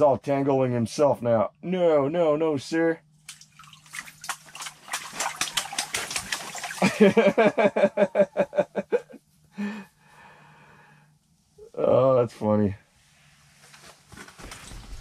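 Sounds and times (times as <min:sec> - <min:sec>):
faint low hum: 0:00.0 - 0:15.0
man laughing hard: 0:06.8 - 0:09.8.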